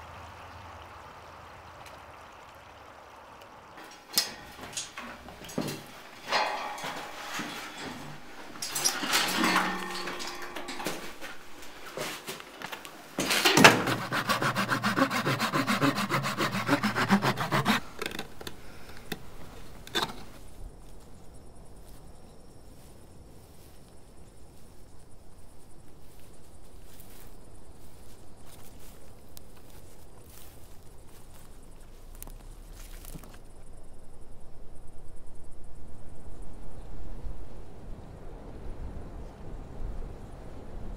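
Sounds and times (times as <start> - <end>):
rhythmic scraping strokes: 3.8 - 20.4.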